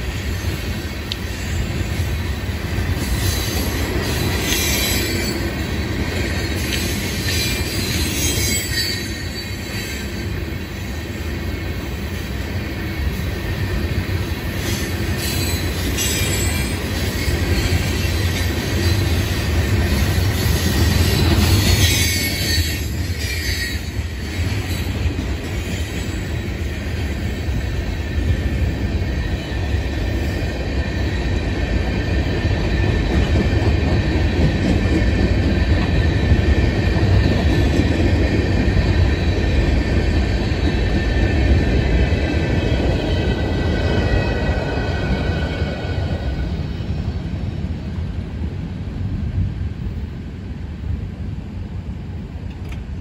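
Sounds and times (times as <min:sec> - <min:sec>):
freight train wheels rumbling on track: 0:00.0 - 0:53.0.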